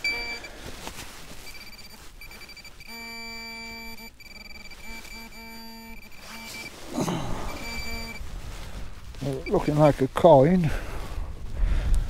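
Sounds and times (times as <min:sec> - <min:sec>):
high steady beeping tone: 0:00.0 - 0:00.5, 0:01.4 - 0:08.2, 0:09.2 - 0:09.9
lower buzzing tone: 0:00.0 - 0:00.5, 0:01.4 - 0:08.4.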